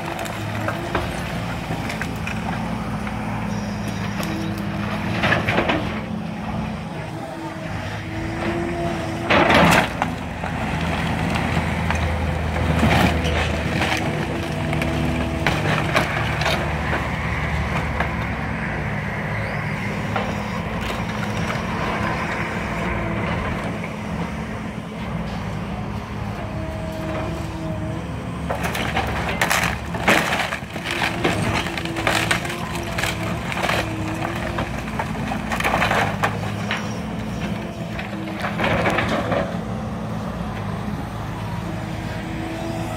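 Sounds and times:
wood cracking and splintering: 0:00.0 - 0:03.4, 0:07.1 - 0:18.8, 0:20.0 - 0:23.9, 0:26.5 - 0:39.9
heavy machinery engine running: 0:00.0 - 0:42.9.

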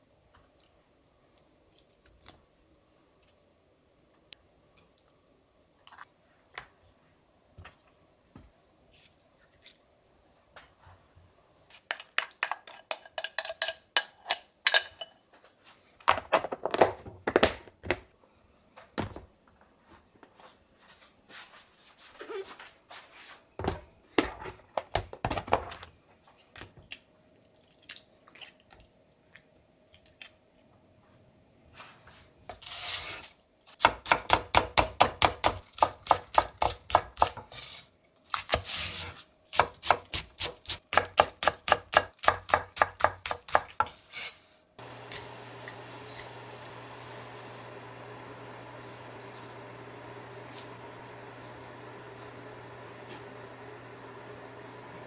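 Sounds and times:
dishes and utensils clinking: 0:12.4 - 0:15.2.

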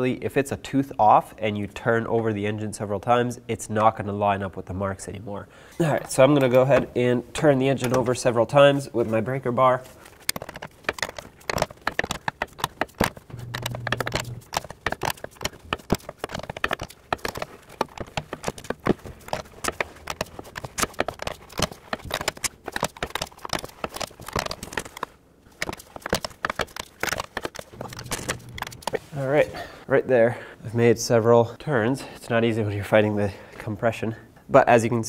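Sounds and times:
engine turned by hand clicking: 0:10.3 - 0:25.0.

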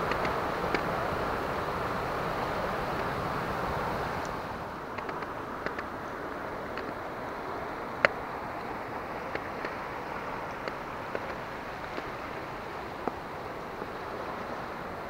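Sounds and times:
faint ticks: 0:00.0 - 0:00.9, 0:04.2 - 0:07.1, 0:08.0 - 0:14.5
river water rushing over rapids: 0:00.0 - 0:15.0.

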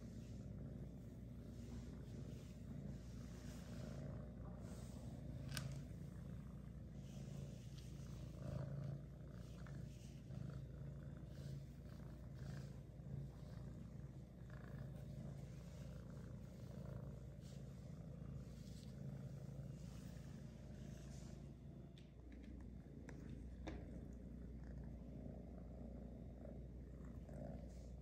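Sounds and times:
kitten purring: 0:00.0 - 0:28.0.

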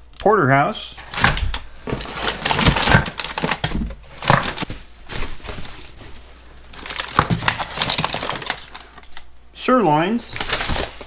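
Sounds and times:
hard packs knocking together: 0:01.0 - 0:09.1, 0:10.3 - 0:11.0
plastic packaging crinkling: 0:01.0 - 0:09.4, 0:10.1 - 0:11.0.

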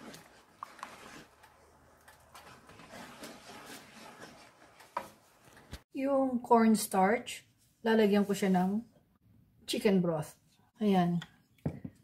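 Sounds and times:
wooden spoon stirring sauce in pan: 0:00.0 - 0:05.8.

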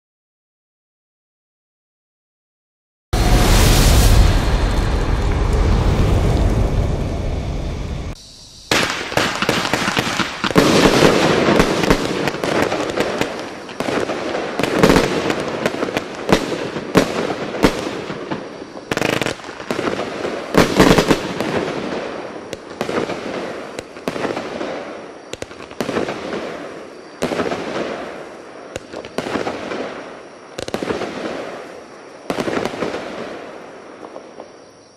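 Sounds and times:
firework launch shots and bursts: 0:08.7 - 0:34.3.

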